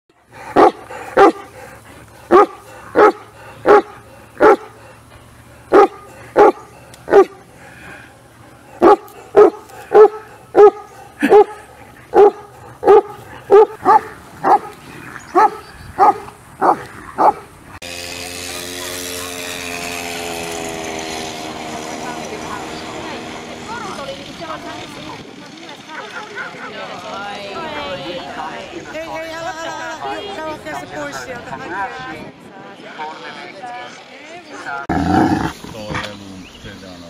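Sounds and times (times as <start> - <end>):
dog barking: 0.6 - 1.5, 2.3 - 4.8, 5.7 - 7.4, 8.8 - 14.8, 15.4 - 17.4.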